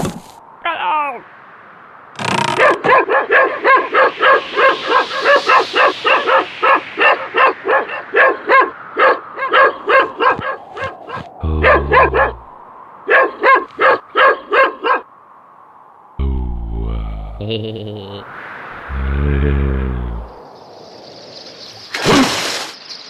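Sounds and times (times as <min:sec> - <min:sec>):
small dogs yapping: 0:02.5 - 0:12.4
dog low rumble: 0:11.1 - 0:12.5, 0:16.2 - 0:17.5, 0:18.9 - 0:20.4.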